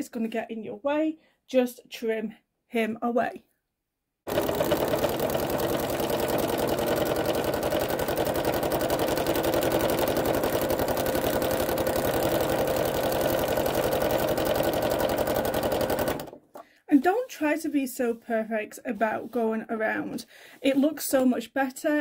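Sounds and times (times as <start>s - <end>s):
sewing machine running: 4.3s - 16.4s.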